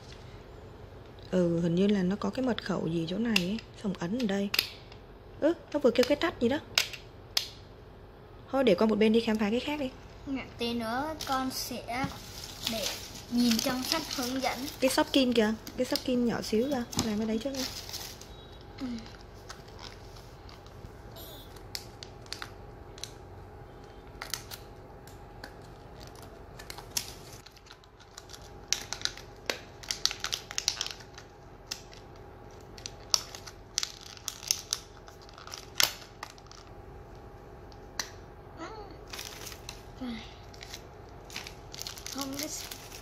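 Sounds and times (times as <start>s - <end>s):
packaging crinkling: 11.1s - 20.8s, 21.5s - 23.2s, 25.4s - 36.7s, 39.0s - 43.0s.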